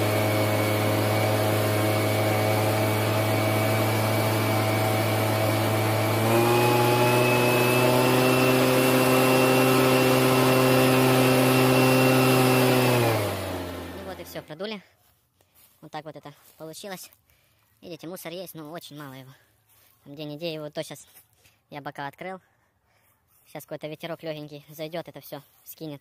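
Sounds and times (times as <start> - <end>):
leaf blower running: 0.0 - 14.6.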